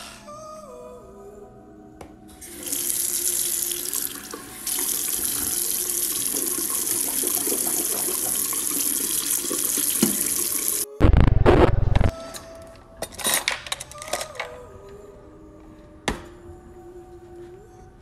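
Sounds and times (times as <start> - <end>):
faucet water splashing into sink: 2.6 - 10.8.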